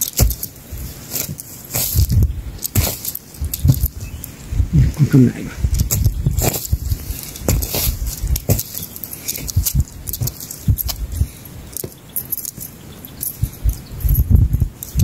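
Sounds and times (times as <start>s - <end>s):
hand hoe chopping into soil: 0.0s - 3.9s, 5.8s - 11.1s
dry grass and earth rustling: 0.0s - 15.0s.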